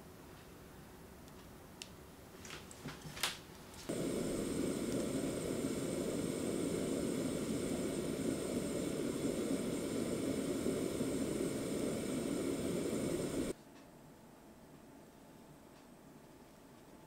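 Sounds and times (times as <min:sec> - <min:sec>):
gas stove burner rushing: 0:03.9 - 0:13.6.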